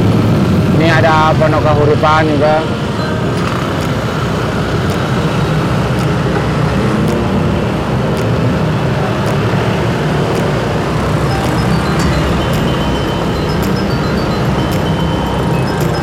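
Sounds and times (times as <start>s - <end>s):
passing motorcycles and cars: 0.0s - 16.0s
wind and road noise: 0.0s - 16.0s.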